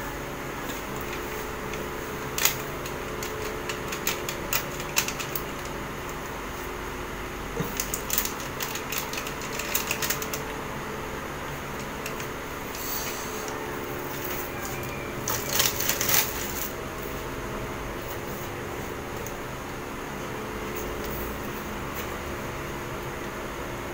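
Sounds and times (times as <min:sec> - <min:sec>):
room hum: 0:00.0 - 0:23.9
objects clicking and rattling: 0:01.0 - 0:06.2, 0:07.6 - 0:10.6, 0:14.1 - 0:16.8.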